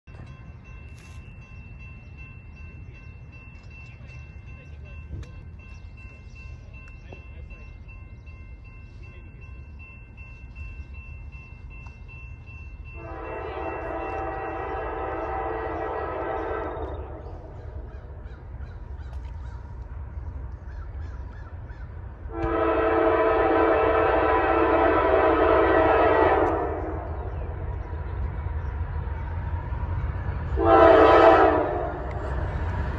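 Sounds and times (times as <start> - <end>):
low train rumble: 0.0 - 32.9
locomotive air horn blasts: 13.0 - 17.3, 22.3 - 27.2, 30.5 - 32.2.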